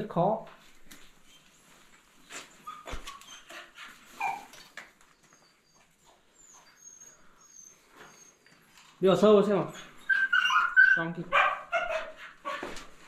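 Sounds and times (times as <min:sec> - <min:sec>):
dog whimpering: 0:02.5 - 0:04.6, 0:05.2 - 0:08.6, 0:09.7 - 0:12.7.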